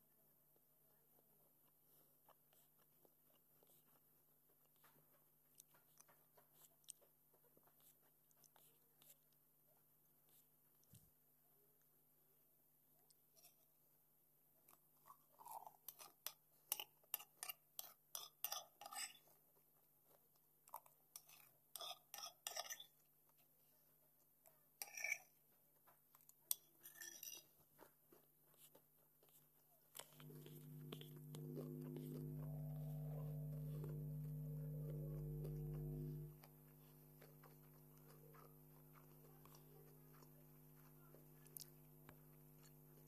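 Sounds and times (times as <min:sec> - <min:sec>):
crunchy chewing: 0:26.1 - 0:43.0
low steady hum: 0:30.2 - 0:43.0
music with held tones: 0:30.2 - 0:43.0.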